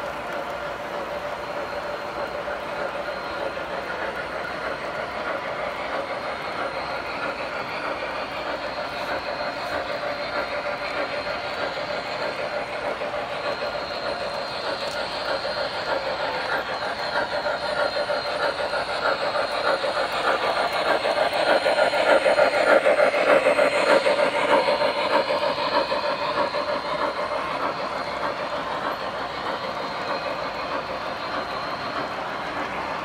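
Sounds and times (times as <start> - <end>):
model train wheels rumbling on track: 0.0 - 33.0.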